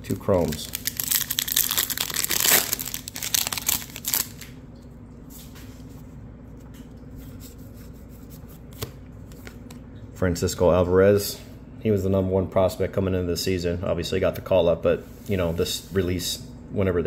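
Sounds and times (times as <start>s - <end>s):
trading cards rustling: 0.0s - 4.4s.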